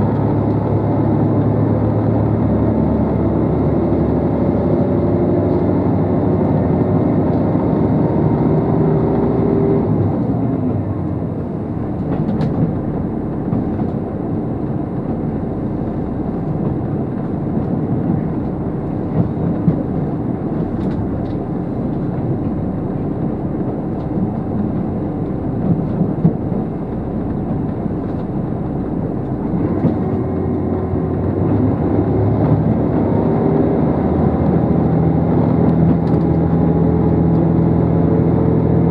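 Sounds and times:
diesel engine drone: 0.0s - 38.9s
wheels rumbling on rail: 0.0s - 38.9s
rail clicks: 11.9s - 14.0s.

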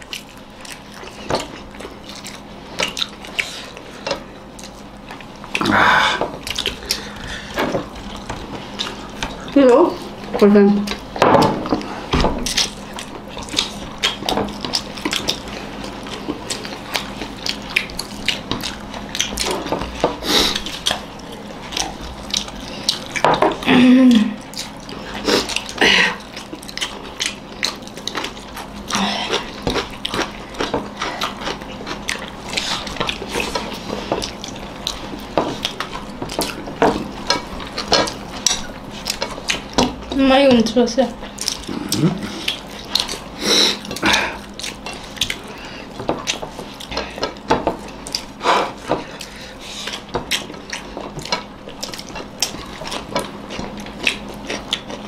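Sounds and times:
people chewing and lip smacking: 0.0s - 55.0s
fingers working food on plates: 24.4s - 55.0s.

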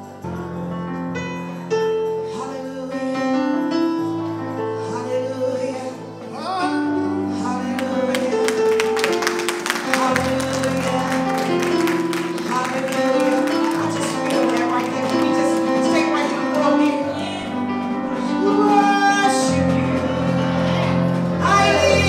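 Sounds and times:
keyboard sustained chords: 0.0s - 22.0s
person singing: 4.6s - 22.0s.

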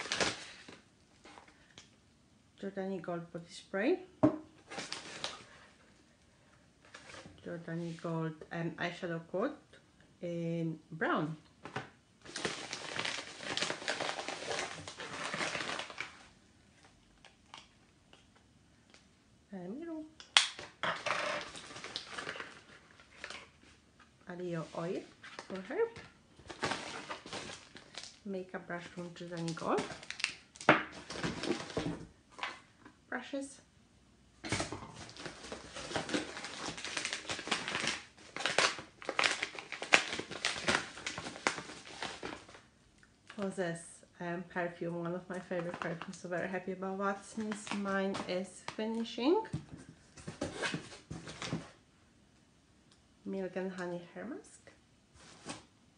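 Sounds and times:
paper wrapping crinkling: 0.0s - 1.6s, 4.7s - 5.6s, 12.2s - 17.8s, 20.9s - 23.8s, 24.6s - 32.6s, 34.5s - 42.7s.

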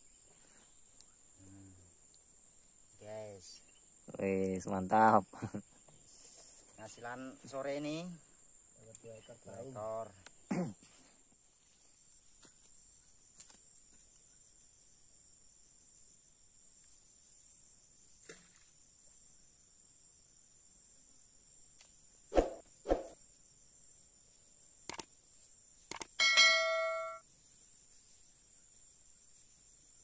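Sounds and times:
insects droning: 0.0s - 30.0s
soft clicks: 24.9s - 25.1s.

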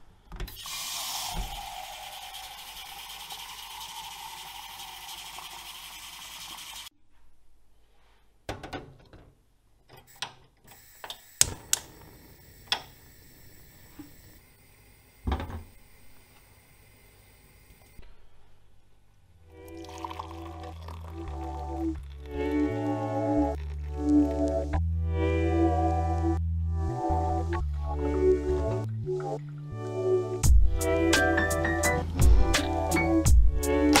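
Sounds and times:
tap water running into metal pot: 0.5s - 6.9s, 19.7s - 21.5s.

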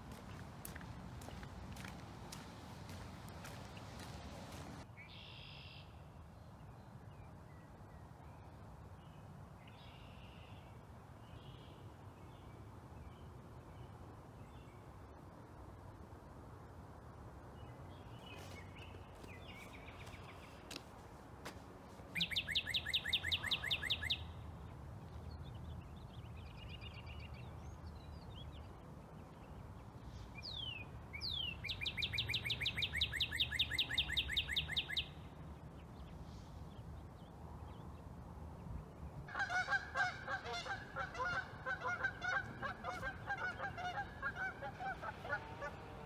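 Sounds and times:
geese honking: 39.3s - 46.0s.

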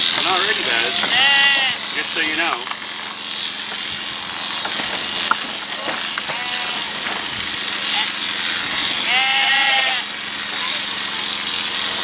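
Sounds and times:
electric shearing handpiece humming: 0.0s - 12.0s
sheep bleating: 0.8s - 1.9s, 6.2s - 7.0s, 8.9s - 10.2s.

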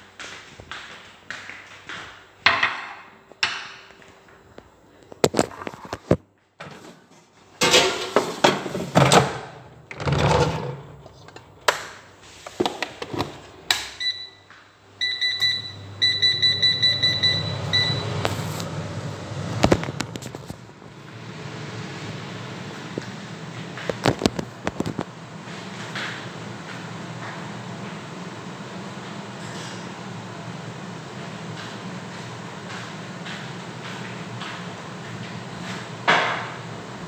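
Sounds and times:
kitchen handling knocks and clatter: 2.4s - 3.8s, 7.6s - 11.2s.

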